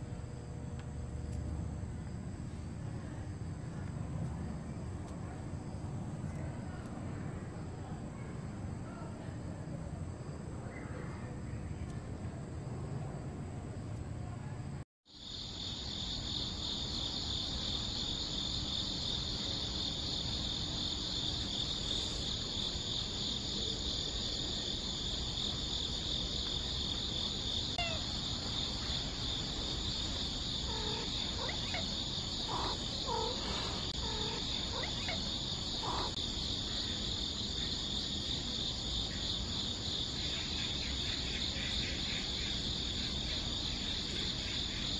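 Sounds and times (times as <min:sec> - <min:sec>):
pulsing insect chorus: 0:15.1 - 0:44.9
faint short calls: 0:30.7 - 0:36.2.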